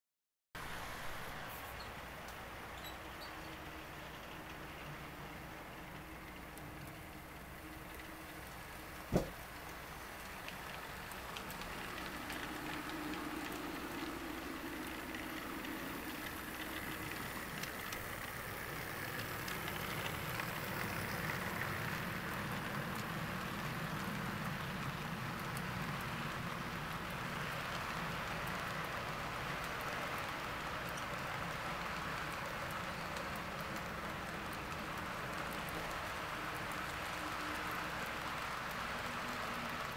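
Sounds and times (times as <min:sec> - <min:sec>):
model train wheels rattling: 0:01.7 - 0:39.9.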